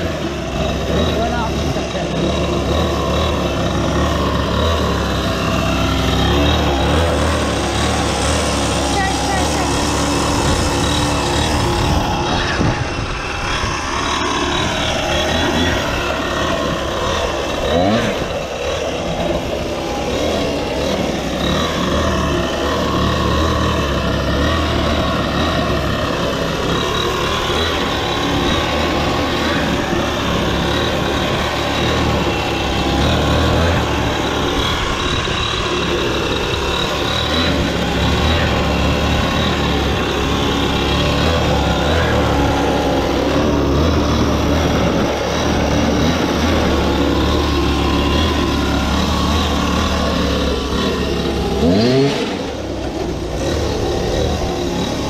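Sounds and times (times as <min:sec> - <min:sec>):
small gasoline engine running: 0:00.0 - 0:55.0.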